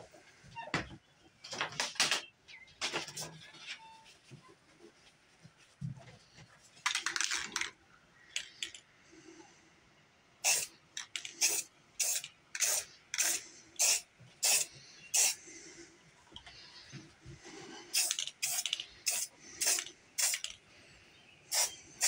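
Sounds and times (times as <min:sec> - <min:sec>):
spray paint can hissing: 0:10.4 - 0:10.7, 0:11.3 - 0:15.4, 0:17.9 - 0:20.6, 0:21.5 - 0:22.0.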